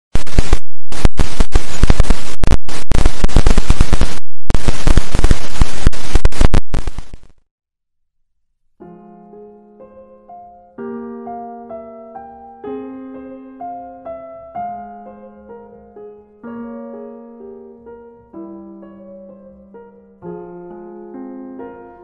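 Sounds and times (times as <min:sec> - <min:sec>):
crackling static noise: 0:00.1 - 0:07.5.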